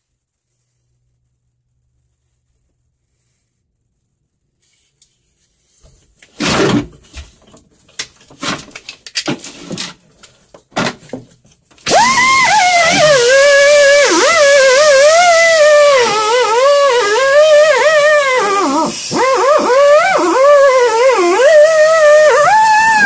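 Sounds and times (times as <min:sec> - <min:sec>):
knocks and rustles: 0:05.8 - 0:11.8.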